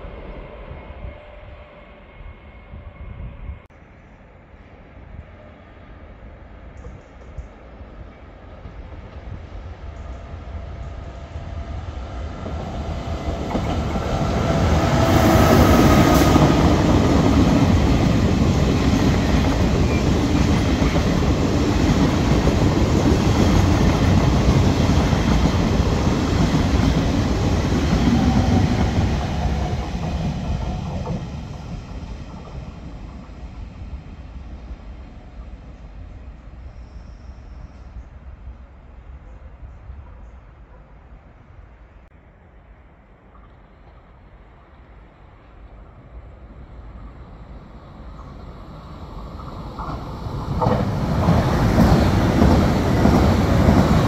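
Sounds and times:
train wheels clattering over rails: 0:49.3 - 0:54.0.

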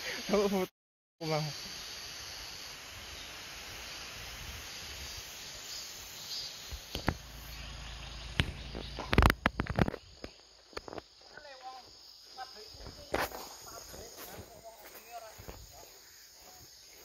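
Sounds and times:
insects buzzing: 0:00.0 - 0:17.0
outdoor hiss: 0:00.0 - 0:17.0.

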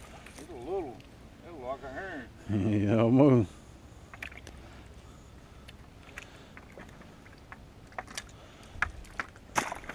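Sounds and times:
soft outdoor hiss: 0:00.0 - 0:09.9.

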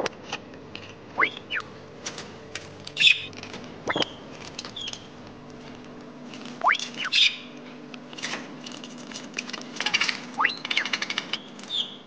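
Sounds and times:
budgerigar chirps and clicks: 0:03.0 - 0:03.3, 0:06.6 - 0:07.4, 0:10.4 - 0:10.9.

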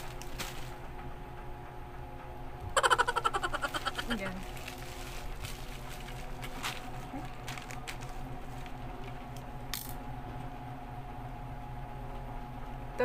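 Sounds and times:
bubble wrap crinkling: 0:00.0 - 0:00.8, 0:03.2 - 0:09.4.

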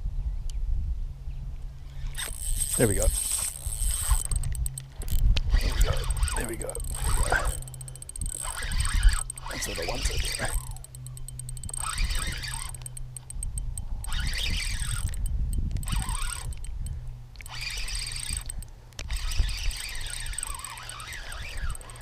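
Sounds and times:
fishing reel gears whining: 0:01.9 - 0:22.0.

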